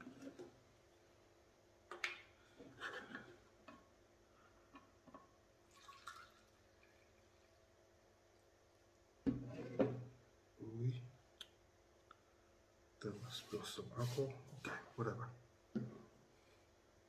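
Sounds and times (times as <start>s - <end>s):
liquid trickling into plastic cup: 5.7s - 7.0s.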